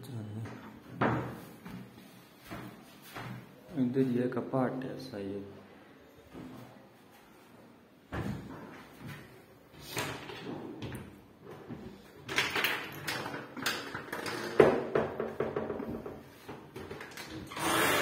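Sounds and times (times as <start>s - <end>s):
wooden wardrobe doors knocking: 1.0s - 1.4s, 14.5s - 16.2s.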